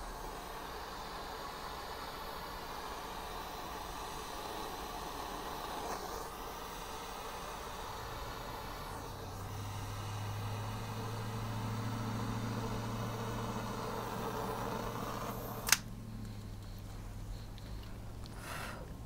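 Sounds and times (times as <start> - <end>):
butane lighter hissing: 0.0 - 19.0
lighter trigger click: 15.5 - 16.5.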